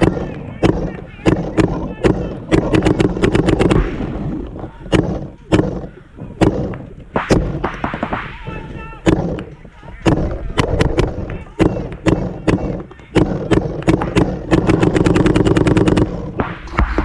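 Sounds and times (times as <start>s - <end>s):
paintball markers popping: 9.1s - 17.0s.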